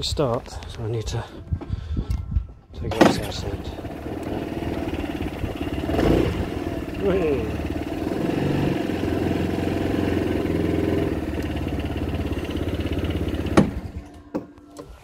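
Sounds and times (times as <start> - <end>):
scooter engine idling: 3.0 - 14.3.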